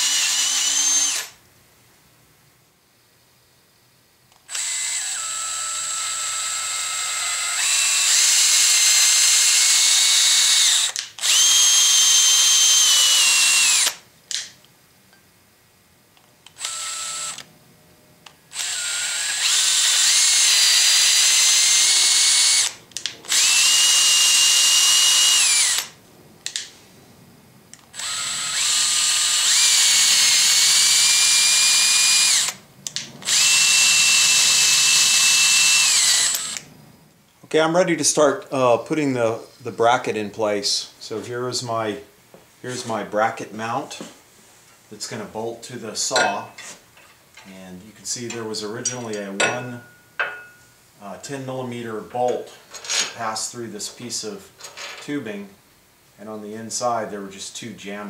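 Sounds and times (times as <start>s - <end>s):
cordless drill motor whining: 0.0s - 1.4s, 4.4s - 14.0s, 16.5s - 17.5s, 18.5s - 26.0s, 27.8s - 36.7s.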